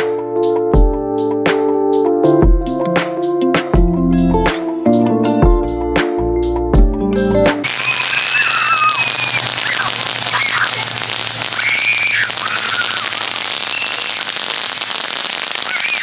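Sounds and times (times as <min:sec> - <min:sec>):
firework crackling hiss: 0:07.6 - 0:16.0
firework whistles: 0:07.6 - 0:16.0.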